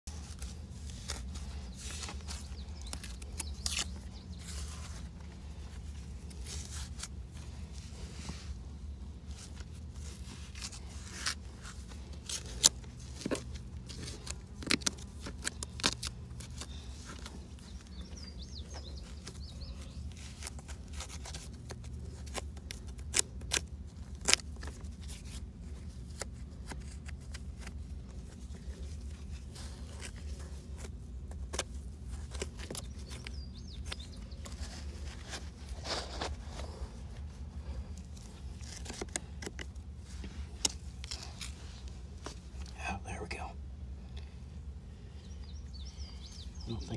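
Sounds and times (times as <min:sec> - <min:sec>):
hand scraping packed dirt: 0:00.1 - 0:42.7
low steady hum: 0:00.1 - 0:46.9
roots snapping: 0:01.9 - 0:04.5, 0:10.5 - 0:17.3, 0:20.4 - 0:24.8.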